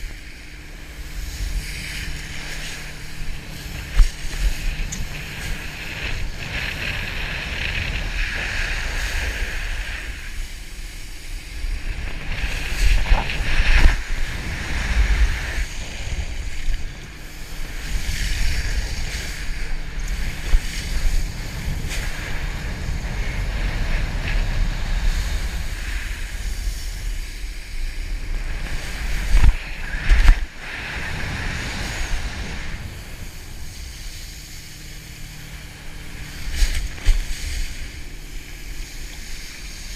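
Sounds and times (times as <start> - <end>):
wakeboard skimming water: 0.0 - 39.9
wind buffeting microphone: 0.0 - 39.9.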